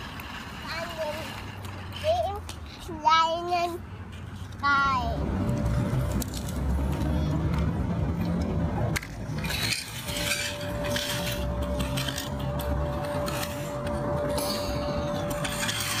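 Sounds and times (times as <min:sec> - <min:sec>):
stones and plastic toys clinking: 0:09.0 - 0:16.0.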